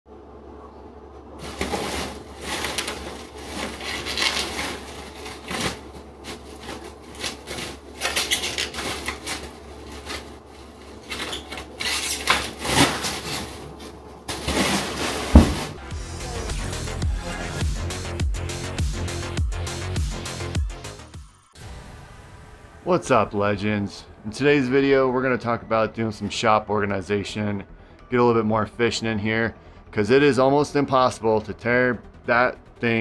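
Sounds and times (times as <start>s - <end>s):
bubble wrap crinkling: 1.4s - 15.8s.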